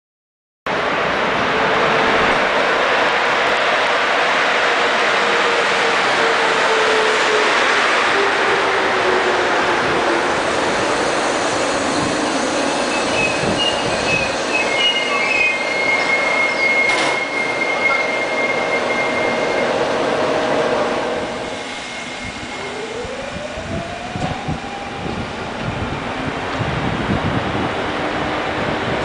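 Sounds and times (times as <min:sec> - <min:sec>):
train coaches rolling past: 0:00.7 - 0:29.0
high-pitched brake squeal: 0:10.8 - 0:19.8.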